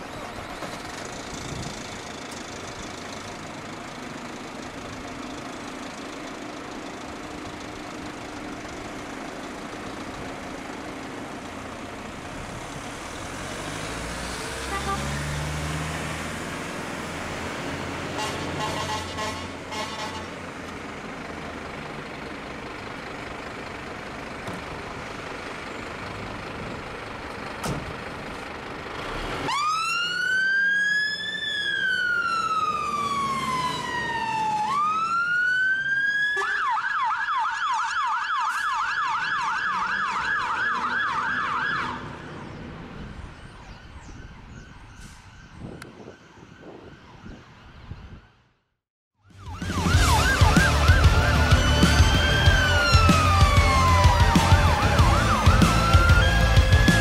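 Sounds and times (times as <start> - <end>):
diesel engine running: 0.0 - 29.5, 49.3 - 57.0
fire engine siren wailing and yelping: 29.4 - 48.4, 49.2 - 57.0.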